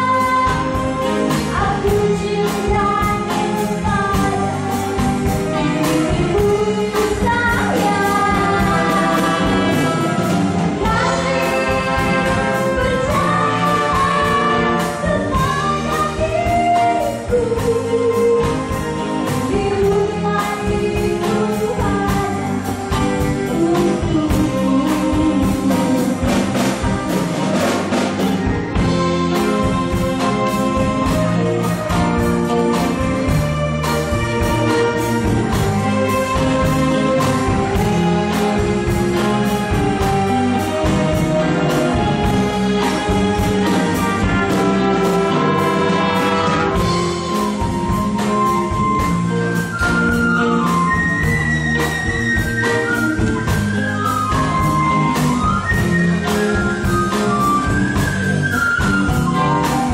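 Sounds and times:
brass: 0.0 - 20.5, 21.2 - 59.9
drums: 0.0 - 59.9
electric guitar: 0.0 - 59.9
person singing: 5.8 - 27.8.

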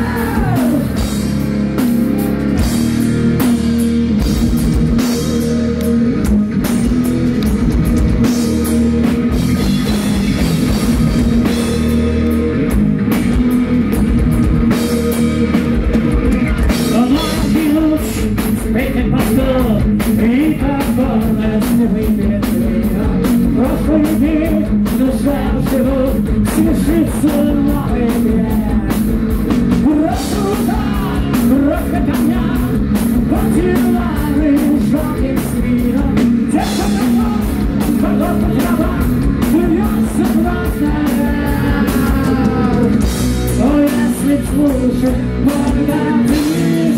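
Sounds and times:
male lead vocal: 0.0 - 2.6, 16.1 - 46.9
heavy metal band playing: 0.0 - 46.9.

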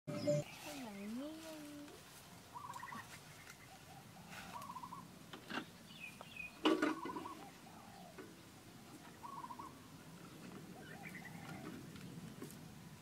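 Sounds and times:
bird trilling call: 0.1 - 0.8, 2.5 - 5.1, 5.9 - 8.2, 9.2 - 9.8.

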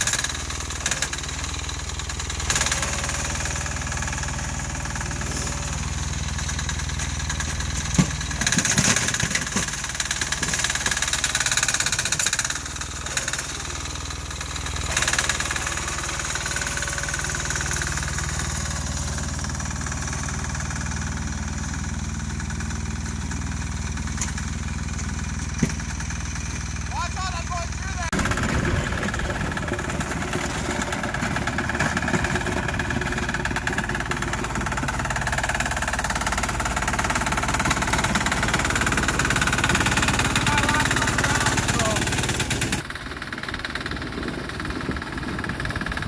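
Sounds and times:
diesel engine running: 0.0 - 46.0.

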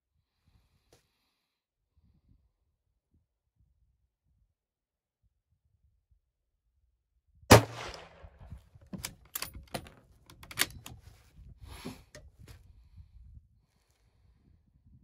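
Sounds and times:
rifle shot: 7.5 - 8.6
rifle bolt clicking: 9.0 - 11.0.

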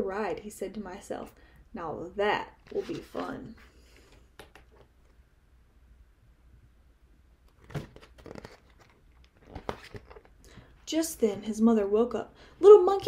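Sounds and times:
paper rustling: 2.6 - 4.9, 7.5 - 10.4
book pages turning: 2.6 - 5.2, 7.5 - 10.4.

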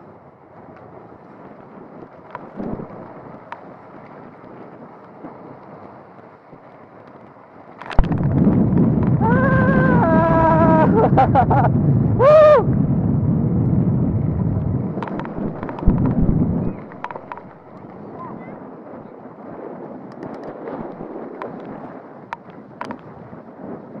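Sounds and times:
wind and tyre rumble: 0.0 - 24.0.

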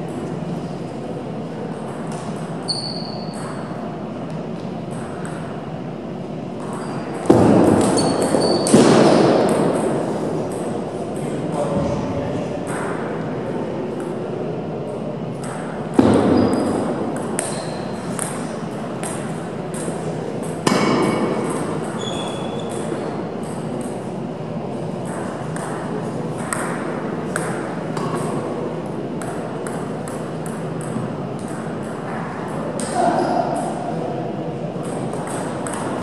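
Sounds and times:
table tennis balls clicking: 34.8 - 36.0.

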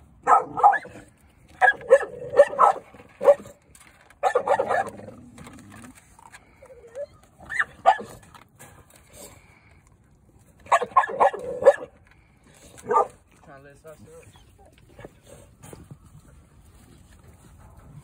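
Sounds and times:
dog barking: 0.2 - 1.0, 1.6 - 3.5, 4.2 - 4.9, 7.5 - 8.2, 10.7 - 11.9, 12.8 - 13.2.

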